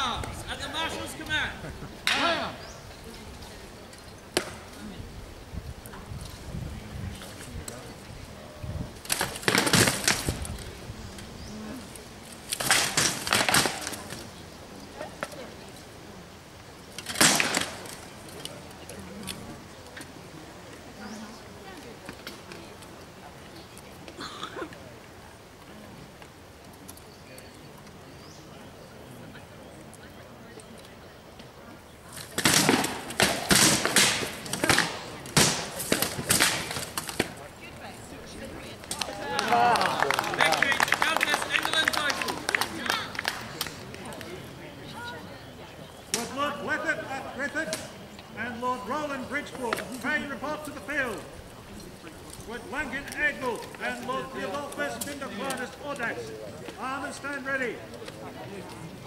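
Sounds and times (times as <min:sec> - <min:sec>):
swords striking shields: 0:32.4 - 0:37.3.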